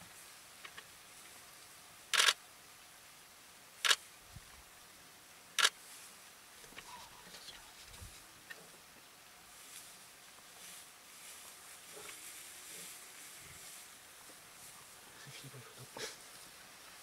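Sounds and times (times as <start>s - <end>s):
camera shutter clicks: 2.1s - 2.4s.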